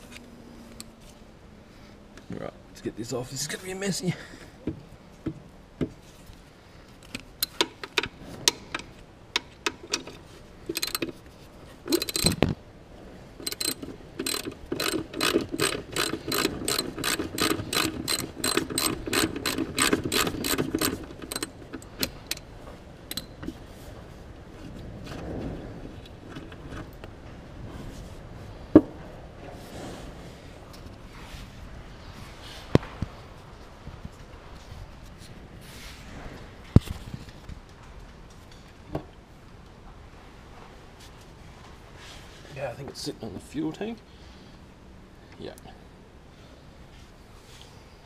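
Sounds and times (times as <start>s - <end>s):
ratchet spanner clicking: 9.4s - 11.2s, 11.9s - 12.4s, 13.4s - 22.5s.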